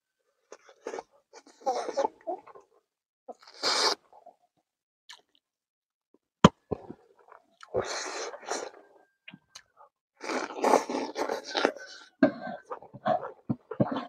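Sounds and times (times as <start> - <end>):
wet chewing and lip-smacking: 6.7 - 14.0.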